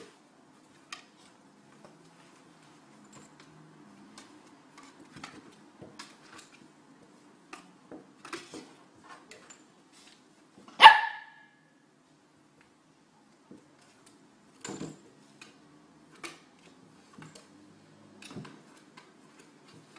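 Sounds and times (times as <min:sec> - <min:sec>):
dog barking: 0:10.8 - 0:11.5.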